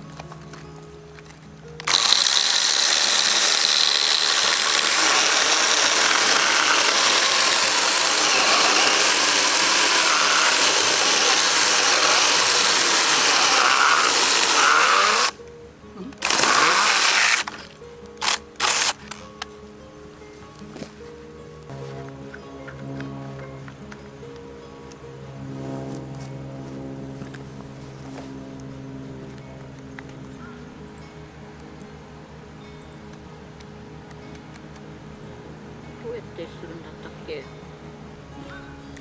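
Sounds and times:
mini chainsaw cutting log: 0:01.8 - 0:15.4, 0:16.2 - 0:19.2.

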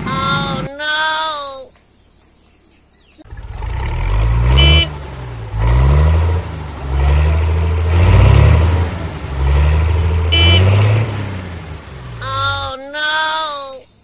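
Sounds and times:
tractor engine revving: 0:03.2 - 0:12.7
short horn beep: 0:04.5 - 0:05.0, 0:10.3 - 0:10.8.

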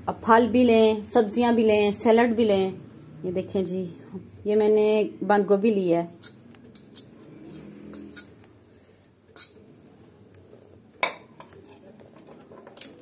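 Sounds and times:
metal spoon clinking on glass bowl: 0:06.2 - 0:08.4, 0:09.4 - 0:09.6.

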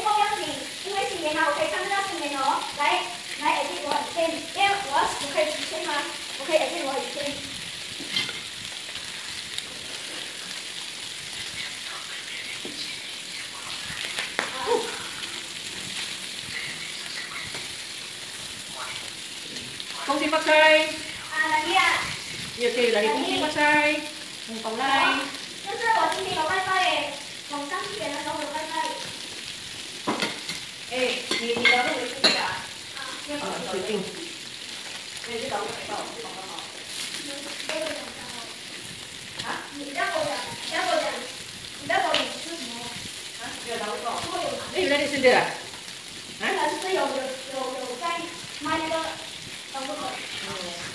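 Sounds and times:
food sizzling on a grill pan: 0:00.0 - 0:50.9.

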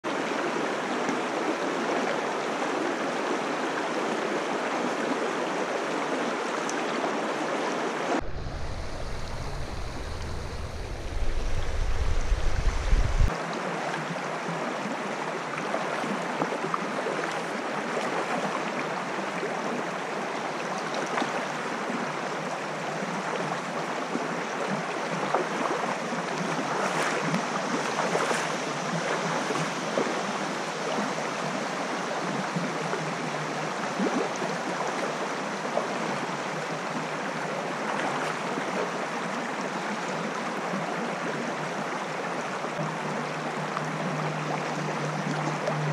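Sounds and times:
stream water over rocks: 0:00.1 - 0:45.9
loud low rumble: 0:08.2 - 0:13.3.

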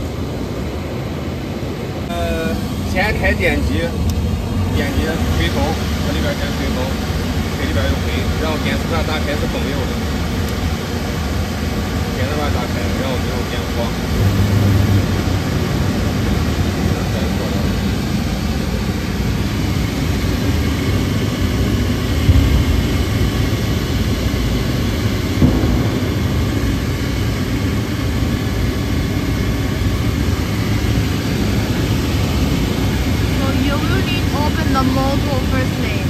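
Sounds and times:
oil burner blower roaring: 0:00.0 - 0:36.0.

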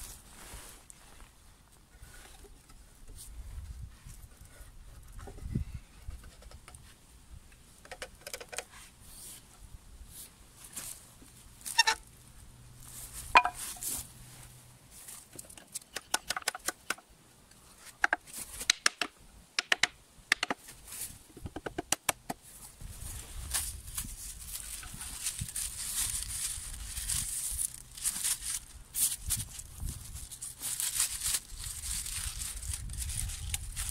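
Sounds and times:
dry reed stalks rustling: 0:00.0 - 0:04.4, 0:10.1 - 0:15.4, 0:22.5 - 0:33.9.

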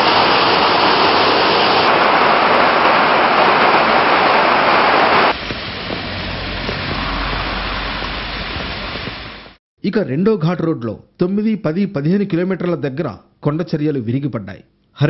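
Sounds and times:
floodwater rushing through spillway: 0:00.0 - 0:09.6
water cascading down rocks: 0:00.0 - 0:09.6.

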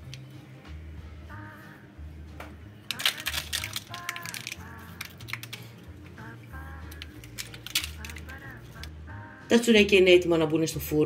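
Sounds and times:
seeds sprinkling on dough: 0:02.9 - 0:05.8.

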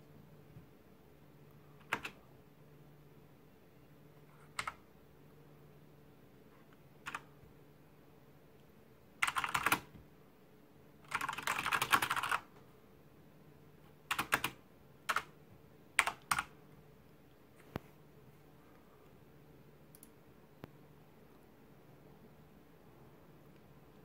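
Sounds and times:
mechanical keyboard keystrokes: 0:01.8 - 0:02.2, 0:04.5 - 0:04.8, 0:07.1 - 0:07.3, 0:09.2 - 0:09.9, 0:11.1 - 0:12.5, 0:14.1 - 0:15.3.

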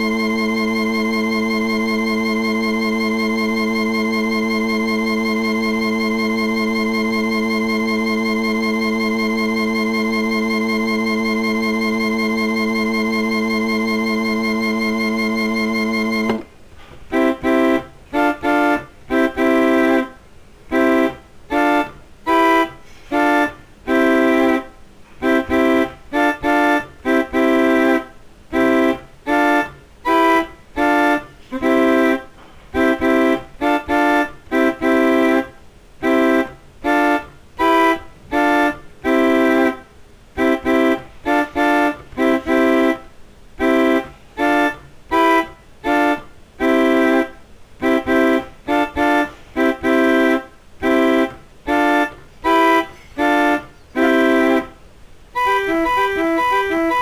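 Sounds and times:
keyboard chord stabs: 0:00.0 - 0:16.5, 0:17.1 - 0:54.8, 0:55.4 - 0:57.0.

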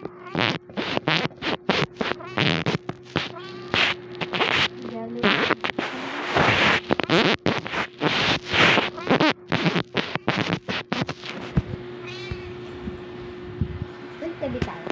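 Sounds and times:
faint steady hum: 0:00.0 - 0:14.9
rustling on microphone: 0:00.4 - 0:11.8.

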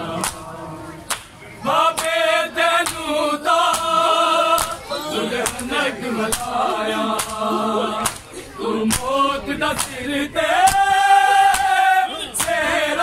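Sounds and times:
men chanting a lament: 0:00.0 - 0:13.0
hands slapping chests: 0:00.2 - 0:00.4, 0:01.0 - 0:02.2, 0:02.8 - 0:03.0, 0:03.7 - 0:04.0, 0:05.4 - 0:05.7, 0:07.2 - 0:07.4, 0:08.0 - 0:08.3, 0:08.9 - 0:09.1, 0:09.8 - 0:10.0, 0:10.7 - 0:10.9, 0:11.5 - 0:11.7, 0:12.4 - 0:12.6.

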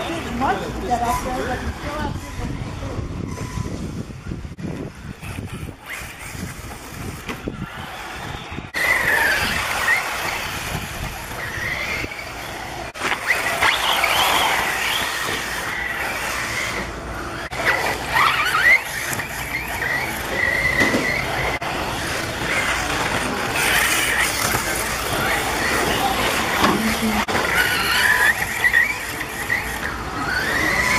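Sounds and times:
rc car motor whining: 0:00.0 - 0:30.9.

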